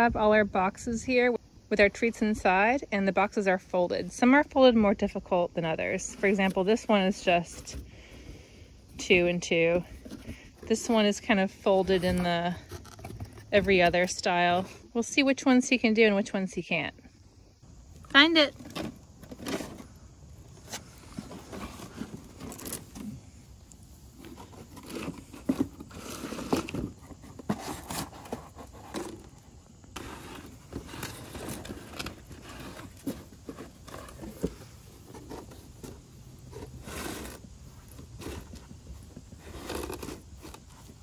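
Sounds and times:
cardboard scraping and rustling: 8.9 - 14.9, 18.1 - 41.0.

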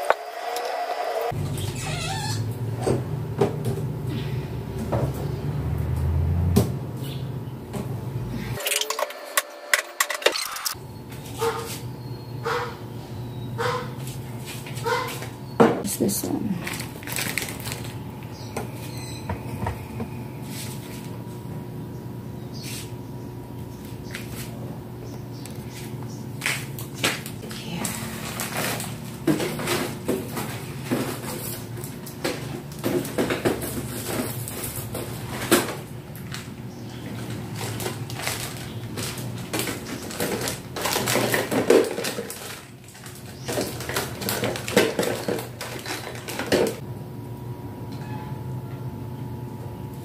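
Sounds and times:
refrigerator hum: 0.0 - 50.0
plastic crinkling: 16.6 - 18.0, 27.4 - 32.1, 37.1 - 46.8
containers knocking and clattering: 28.4 - 31.6, 39.0 - 46.8.

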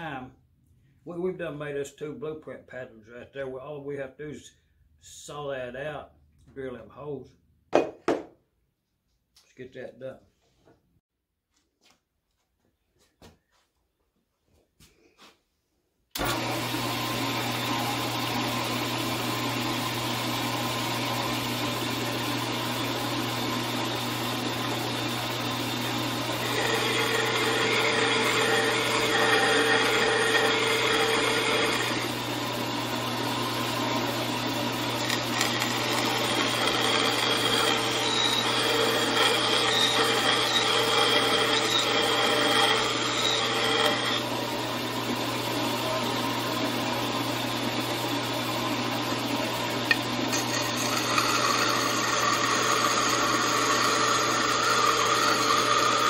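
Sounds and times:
blade cutting metal: 16.2 - 48.2, 48.8 - 56.0
bandsaw motor hum: 16.2 - 56.0.

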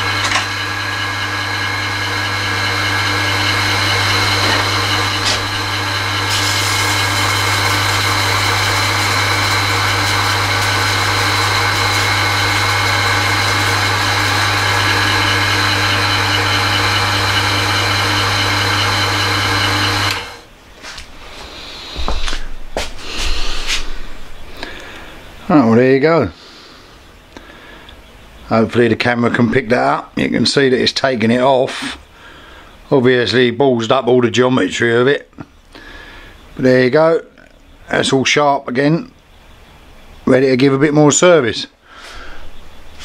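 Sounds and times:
grinding wheel grinding metal bit: 0.0 - 20.4
bench grinder motor hum: 0.0 - 20.5.

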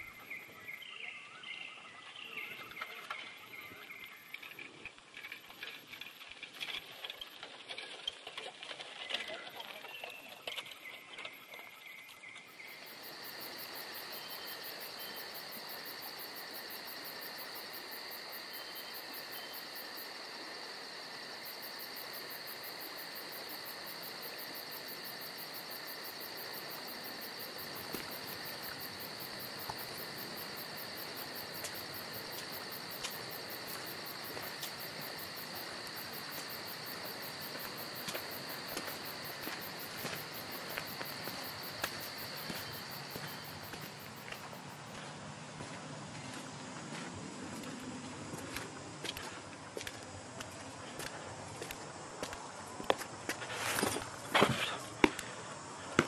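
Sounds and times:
shrill insect chorus: 9.0 - 45.0.

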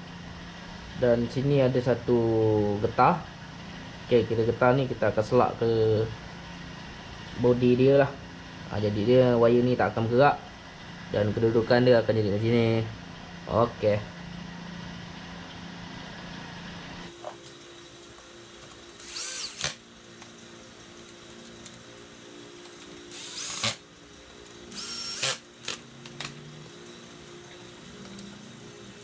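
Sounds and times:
cordless drill whining: 19.0 - 19.9, 22.8 - 23.9, 24.7 - 26.4.

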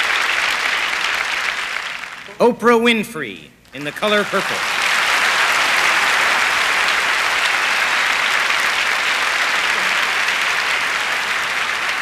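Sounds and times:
audience applauding: 0.0 - 2.4, 3.8 - 12.0
audience cheering: 3.8 - 12.0.

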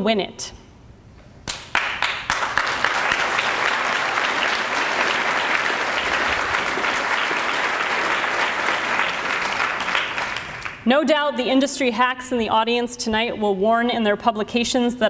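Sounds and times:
audience applauding: 1.5 - 10.8.

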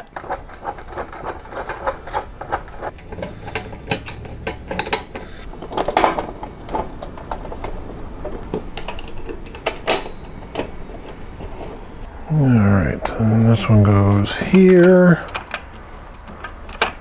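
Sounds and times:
metal tools clicking and clattering: 0.1 - 7.8, 8.7 - 11.7.

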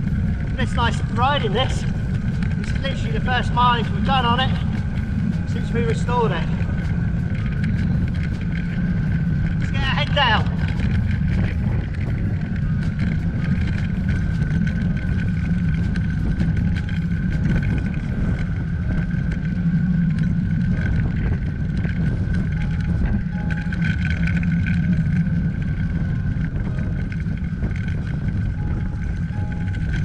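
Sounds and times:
steady high whine: 0.0 - 30.0
wind rushing over microphone: 0.0 - 30.0.

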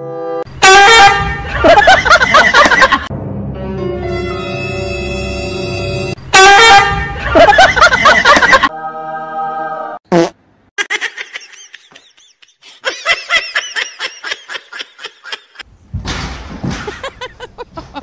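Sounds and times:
rapid laughter: 1.4 - 3.1, 7.1 - 8.7, 10.8 - 15.6, 16.8 - 18.0
comic fart sound effect: 10.1 - 10.4.

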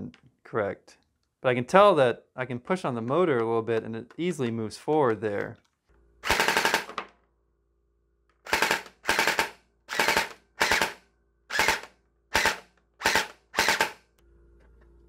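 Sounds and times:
gel blaster gearbox full-auto bursts: 6.2 - 6.9, 8.4 - 14.0.

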